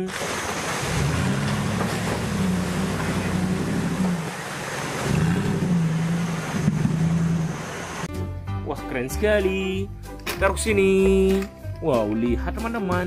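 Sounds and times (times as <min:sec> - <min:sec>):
off-road vehicle engine revving: 0:00.0 - 0:08.1.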